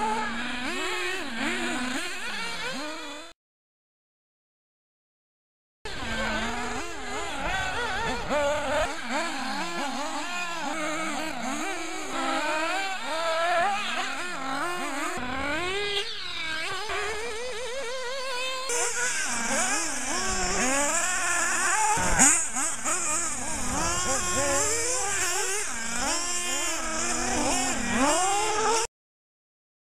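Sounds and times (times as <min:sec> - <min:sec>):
small nitro engines revving: 0:00.0 - 0:03.3, 0:05.9 - 0:28.9.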